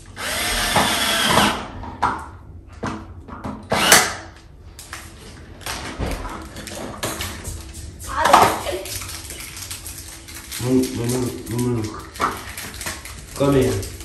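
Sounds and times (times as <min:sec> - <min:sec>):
power drill driving screws: 0:00.2 - 0:01.7, 0:03.7 - 0:04.2.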